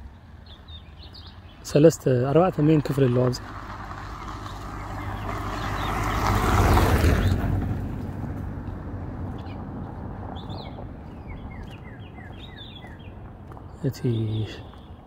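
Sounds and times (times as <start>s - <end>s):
birds chirping: 0.0s - 15.0s
car driving past: 2.8s - 12.6s.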